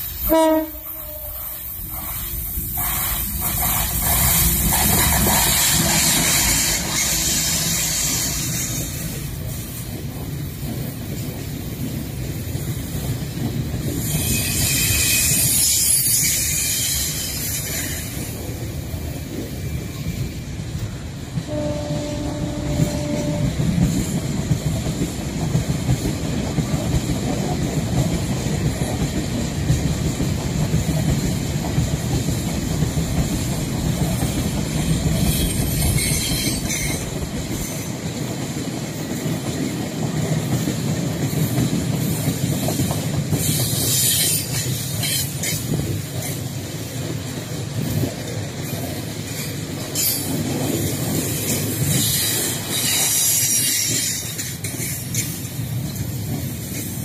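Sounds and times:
freight train rumbling past: 0.0 - 57.0
train horn note: 0.2 - 1.7, 21.5 - 23.8.

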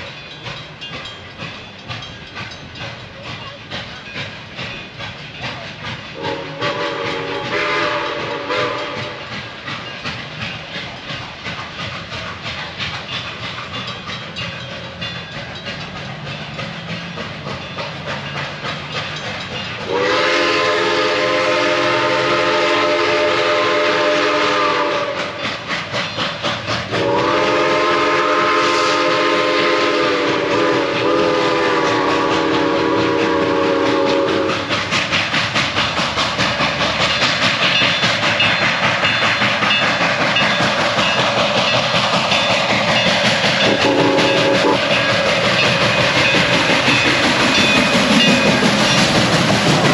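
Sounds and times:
steam locomotive exhaust chuffing: 0.0 - 49.9
steam whistle blasts: 6.1 - 9.3, 19.8 - 25.4, 26.9 - 34.7, 43.6 - 45.1.

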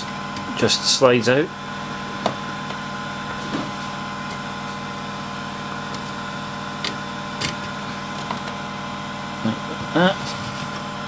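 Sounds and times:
printer machine hum: 0.0 - 11.0.

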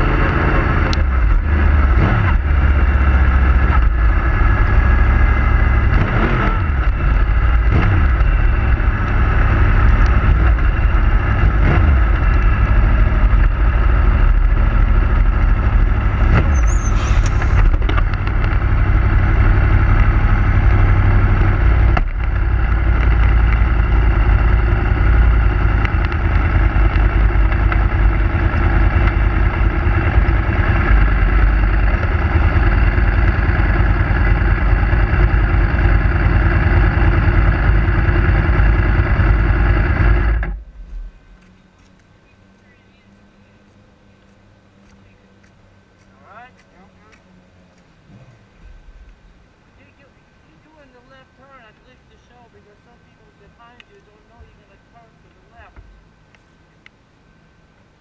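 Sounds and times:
motorcycle engine running: 0.0 - 58.0
high-pitched squeak: 16.5 - 17.6.

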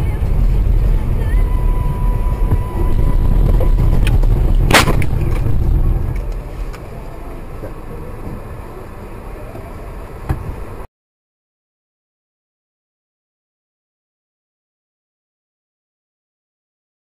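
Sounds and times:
car rumble: 0.0 - 10.9.

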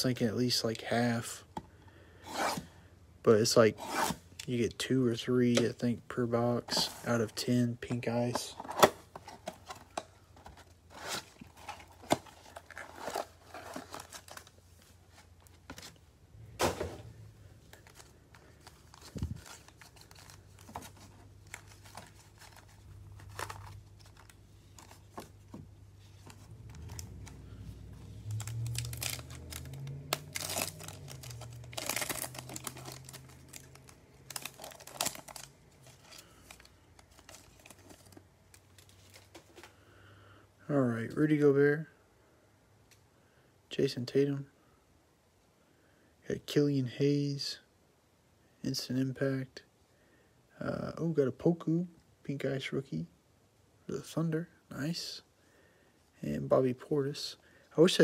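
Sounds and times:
foil packs tearing: 28.3 - 36.6.

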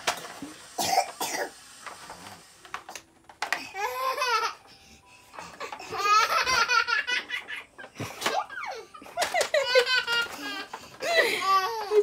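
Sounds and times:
baby laughing: 5.8 - 12.0.

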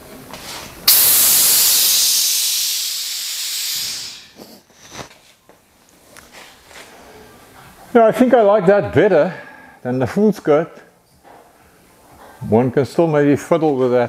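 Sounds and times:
air hiss from suspension airbags: 0.8 - 5.1.

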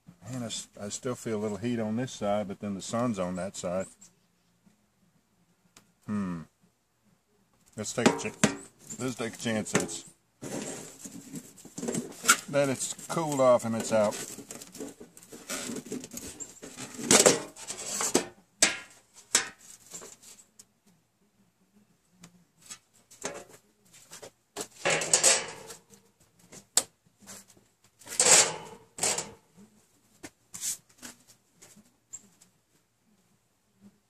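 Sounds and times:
sheet metal tin scraping and clanking: 8.0 - 20.1, 24.8 - 25.8, 28.1 - 29.4.

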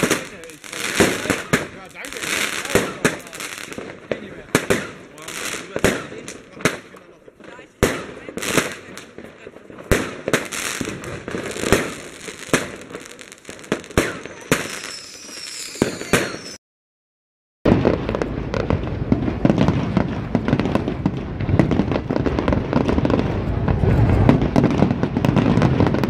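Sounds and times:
fireworks bangs and pops: 0.0 - 16.6, 17.7 - 26.0
fireworks crackling: 0.0 - 16.6, 17.7 - 26.0
low rumbling booms: 17.7 - 26.0.

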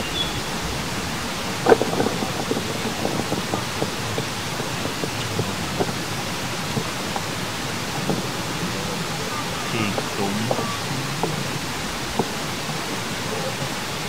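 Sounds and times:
steady rushing outdoor noise: 0.0 - 14.0
faint small crackles: 1.5 - 10.2.

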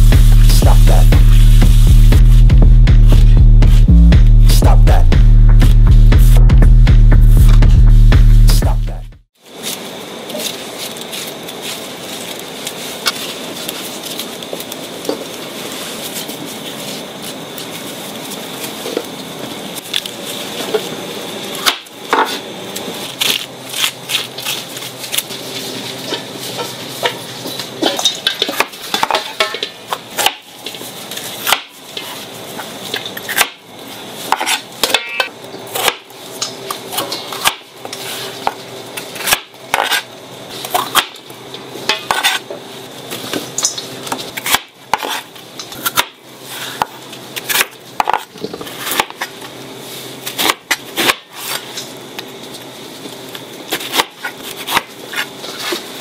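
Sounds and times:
knife and dishes clattering: 26.0 - 29.8.

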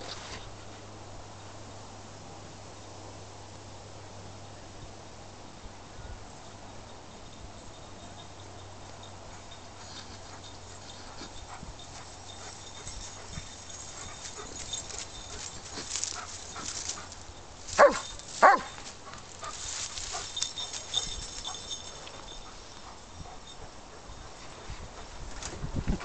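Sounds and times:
rustling: 9.8 - 23.4
dog barking: 17.8 - 18.8.

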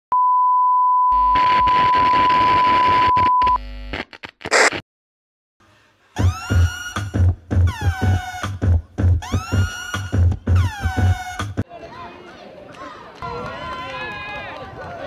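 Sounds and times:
steady test-tone beep: 0.1 - 3.6
crackles: 1.3 - 4.8.

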